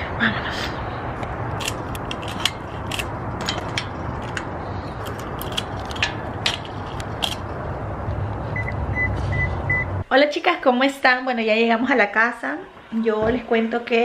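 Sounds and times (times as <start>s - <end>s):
handling clicks and rattles: 1.5s - 7.6s.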